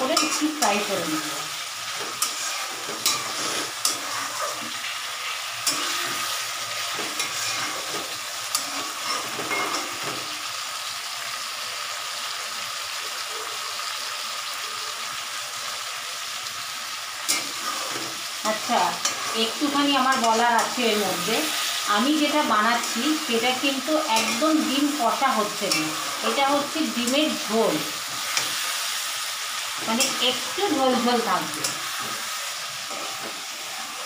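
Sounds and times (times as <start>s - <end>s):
spatula scraping a pan: 0.0s - 10.3s, 17.2s - 34.0s
potatoes sizzling in oil: 0.0s - 34.0s.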